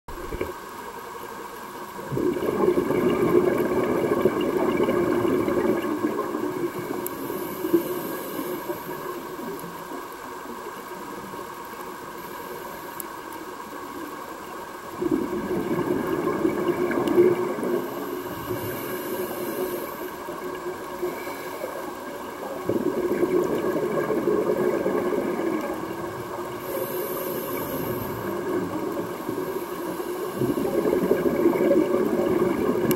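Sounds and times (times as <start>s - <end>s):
rumbling exhaled bubbles underwater: 1.8s - 11.6s, 14.0s - 32.9s
hissing regulator inhalation: 17.0s - 22.1s, 26.5s - 32.9s.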